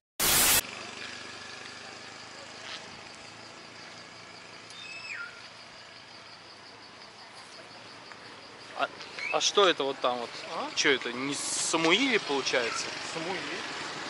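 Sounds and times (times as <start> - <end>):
loud static hiss: 0.2 - 0.6
insect chorus with pulsing trill: 0.8 - 13.9.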